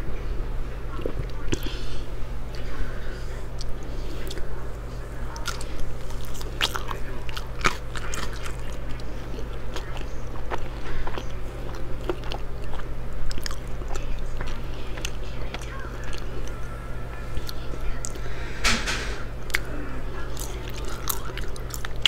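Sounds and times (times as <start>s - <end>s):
person chewing crunchy food: 5.3s - 16.6s, 19.4s - 22.0s.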